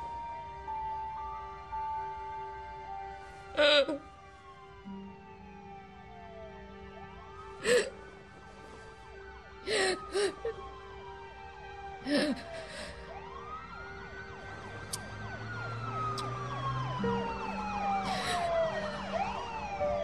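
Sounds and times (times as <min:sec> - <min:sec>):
wailing siren: 0:00.0 - 0:20.0
woman sobbing: 0:03.5 - 0:04.1, 0:07.6 - 0:08.0, 0:09.6 - 0:10.7, 0:12.0 - 0:13.1, 0:18.0 - 0:19.2.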